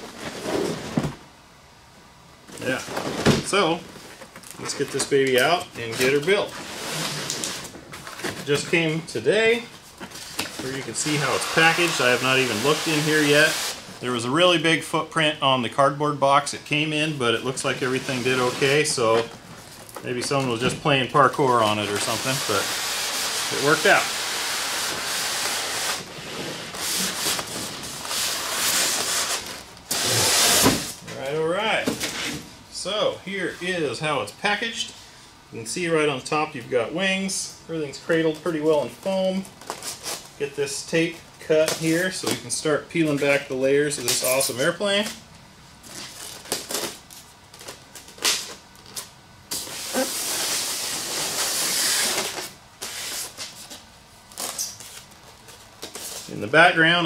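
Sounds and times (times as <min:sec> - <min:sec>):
cardboard scraping on styrofoam: 0:00.0 - 0:01.0, 0:05.8 - 0:07.7, 0:10.6 - 0:13.9, 0:17.7 - 0:19.2, 0:21.5 - 0:31.0, 0:49.5 - 0:53.7
packing tape tearing: 0:05.9 - 0:08.4, 0:21.3 - 0:31.0, 0:39.6 - 0:40.3, 0:45.9 - 0:56.3.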